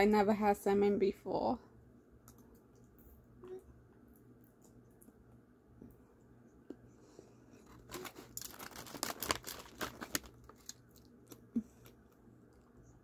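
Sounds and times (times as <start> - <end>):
packaging crinkling: 7.7 - 12.0.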